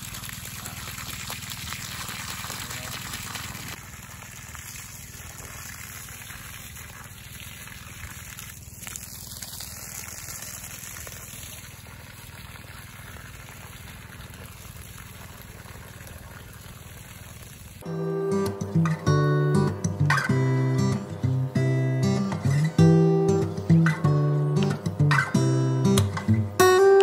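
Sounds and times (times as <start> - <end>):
hose water splashing on soil: 0.0 - 17.9.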